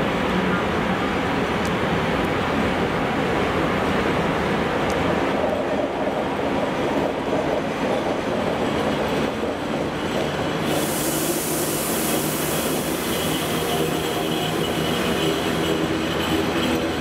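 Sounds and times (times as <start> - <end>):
freight train passing: 0.0 - 17.0
loud hiss from locomotive: 10.5 - 16.6.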